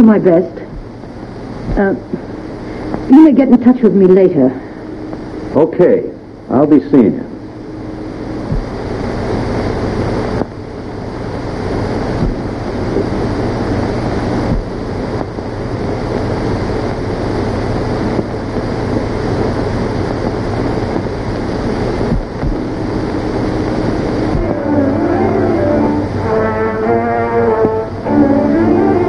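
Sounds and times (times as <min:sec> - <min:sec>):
film soundtrack hiss: 0:00.0 - 0:29.0
low hum: 0:00.0 - 0:29.0.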